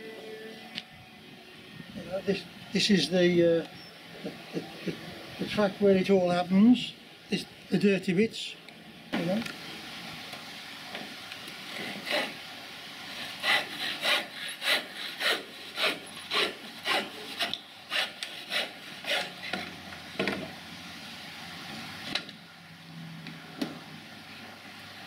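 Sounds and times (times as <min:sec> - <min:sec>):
hand saw cutting timber: 0:11.7 - 0:12.4, 0:13.1 - 0:19.6.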